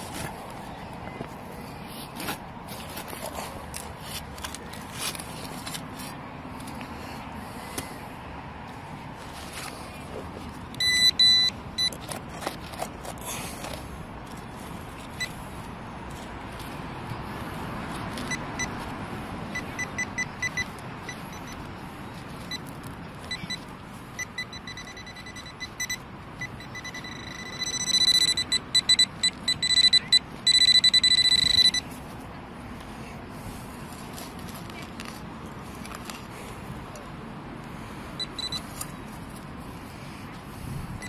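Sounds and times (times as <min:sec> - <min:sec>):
metal detector pinpointer beeping: 0:10.7 - 0:12.2, 0:18.2 - 0:18.9, 0:19.5 - 0:21.7, 0:22.4 - 0:32.0, 0:38.2 - 0:38.9.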